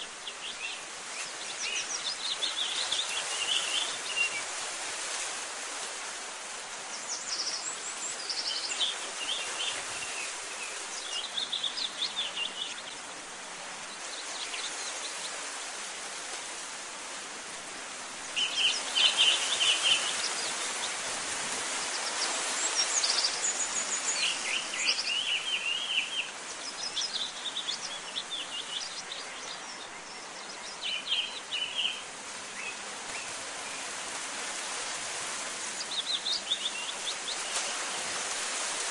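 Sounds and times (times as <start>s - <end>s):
small birds chirping: 0.0s - 4.5s, 6.8s - 15.4s, 18.2s - 21.1s, 21.7s - 33.9s, 35.6s - 38.2s
outdoor hiss: 0.0s - 38.9s.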